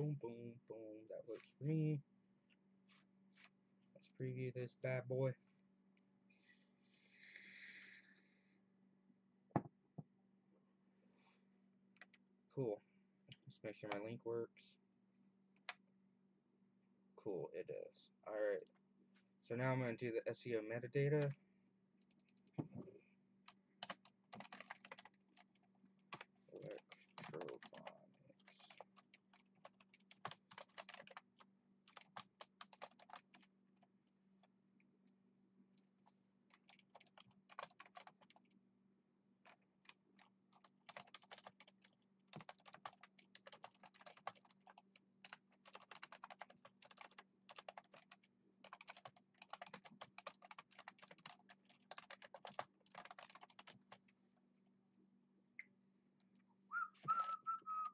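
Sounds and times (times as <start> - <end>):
typing on computer keyboard: 23.8 - 33.5, 36.5 - 38.4, 39.4 - 54.1.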